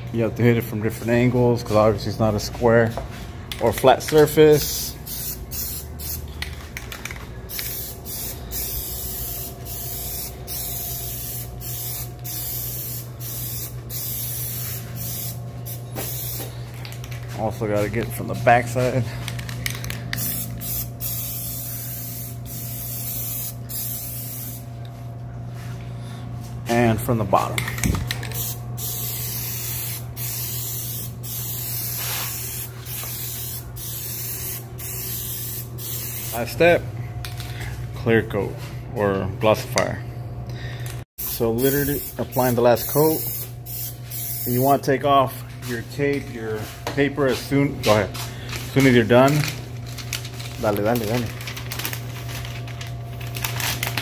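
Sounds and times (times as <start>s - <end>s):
aerosol can spraying: 7.5s - 16.5s, 20.2s - 24.6s, 28.3s - 36.4s, 41.2s - 44.7s.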